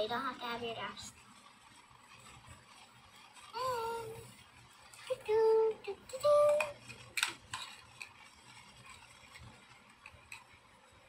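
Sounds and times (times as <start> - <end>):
plastic toys clicking: 2.2 - 10.6.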